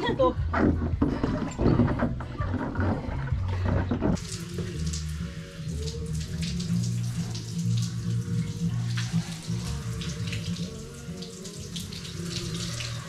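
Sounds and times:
water rushing in hot tub: 4.2s - 13.0s.

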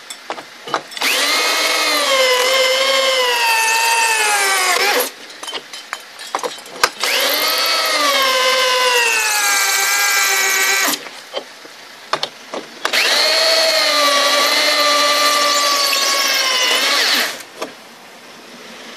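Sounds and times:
drill cutting foam board: 1.0s - 5.2s, 7.0s - 11.0s, 12.8s - 17.5s.

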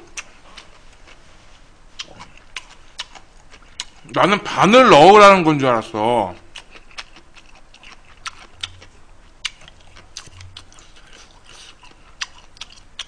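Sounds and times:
chewing noodles with wet mouth clicks: 2.0s - 4.1s, 6.5s - 13.0s.

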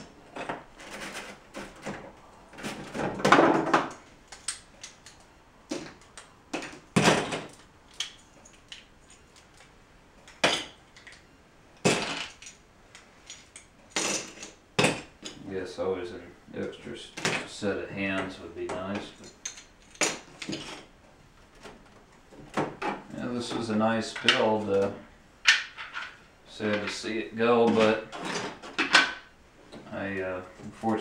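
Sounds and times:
plastic bricks clattering and clicking: 11.8s - 12.6s.

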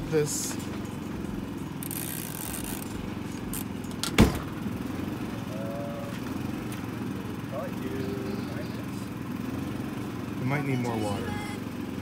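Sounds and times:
generator engine humming: 0.0s - 12.0s.

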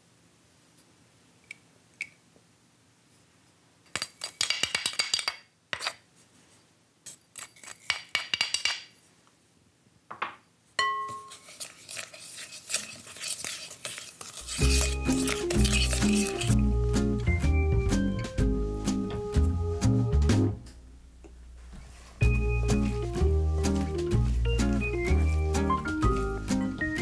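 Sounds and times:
glass bowl ringing: 10.8s - 11.3s
wooden spoon stirring in glass bowl: 10.9s - 16.7s, 22.2s - 27.0s
seasoning poured into glass bowl: 11.1s - 16.6s.

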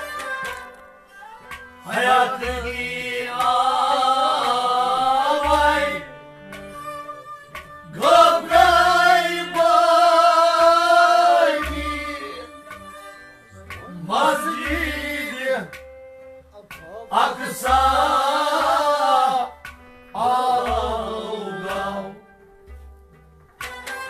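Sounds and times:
harmonium chords: 0.0s - 24.0s
man singing: 1.8s - 6.0s, 13.8s - 15.7s, 17.0s - 19.6s.

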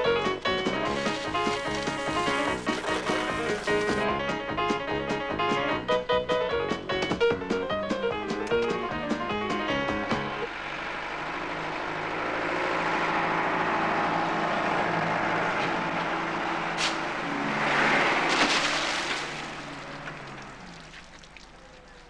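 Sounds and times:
diesel truck engine running: 0.0s - 21.7s
rush of thrown dirt: 0.5s - 4.0s, 16.8s - 21.9s.

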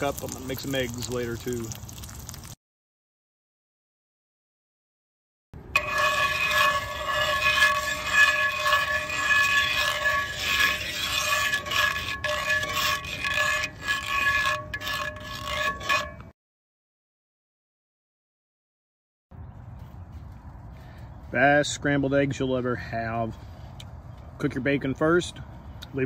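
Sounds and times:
metal tongs scraping skillet: 5.8s - 16.3s.

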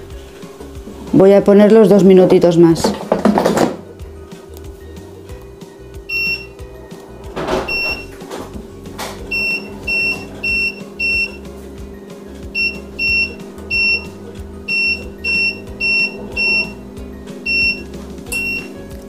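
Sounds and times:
short high beeps: 6.1s - 6.5s, 9.3s - 11.4s, 12.6s - 18.8s
steady low hum: 8.7s - 19.0s.

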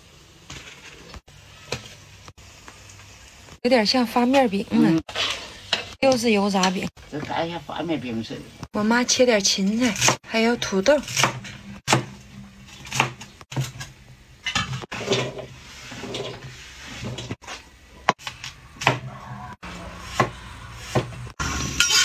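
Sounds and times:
steel bowl handled: 21.6s - 22.0s.

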